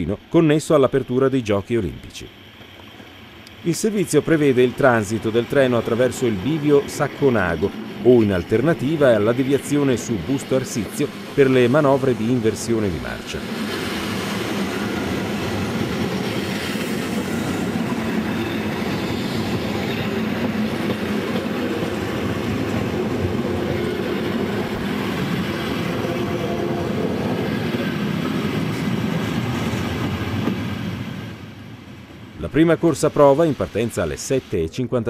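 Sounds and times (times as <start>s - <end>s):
train wheels rumbling on rails: 2.3s - 34.5s.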